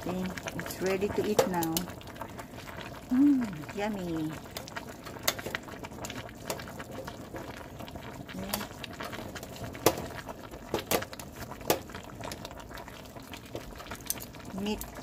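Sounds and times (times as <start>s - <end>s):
bubbles popping: 0.0s - 15.0s
stew broth simmering: 0.0s - 15.0s.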